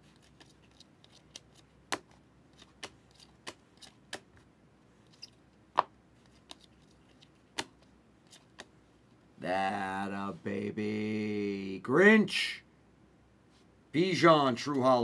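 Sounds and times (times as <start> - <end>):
trading cards clicking and tapping: 5.8 - 8.7.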